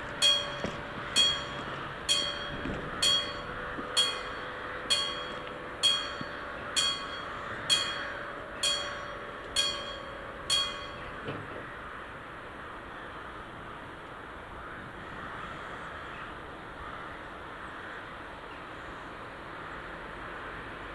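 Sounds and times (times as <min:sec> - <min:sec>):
level-crossing warning bell: 0:00.0 - 0:12.4.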